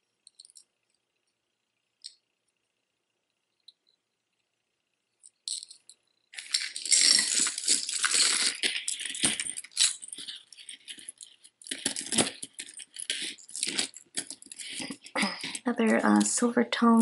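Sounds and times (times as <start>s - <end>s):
metal chains jangling: 6.4s - 15.7s.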